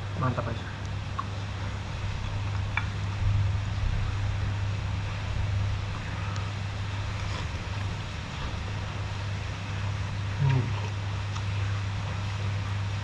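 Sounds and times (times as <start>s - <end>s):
low steady hum: 0.0s - 13.0s
slurping and chewing noodles: 5.9s - 8.7s, 9.8s - 12.5s.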